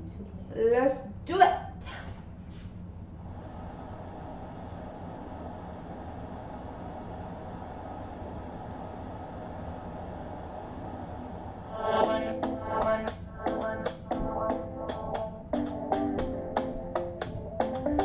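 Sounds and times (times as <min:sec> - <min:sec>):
low even hum: 0:00.0 - 0:18.0
crickets chirring: 0:03.1 - 0:13.9.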